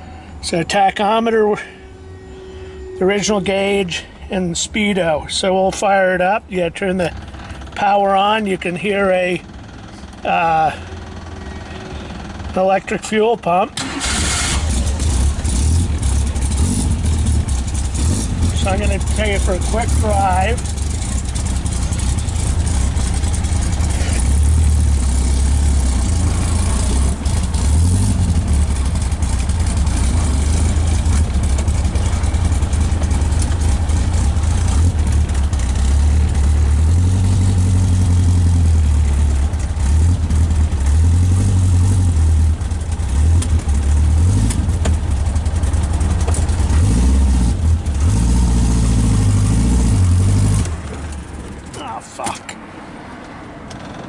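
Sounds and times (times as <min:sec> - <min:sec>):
wind and road noise: 0:13.7 - 0:54.0
car engine accelerating: 0:13.8 - 0:51.8.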